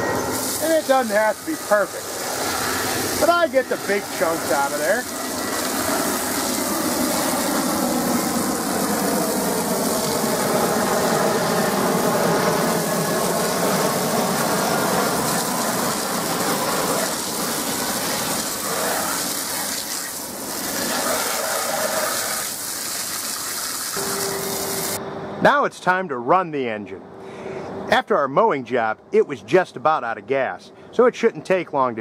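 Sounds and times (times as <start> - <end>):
hose spraying against metal: 0.2 - 7.7, 12.7 - 25.0.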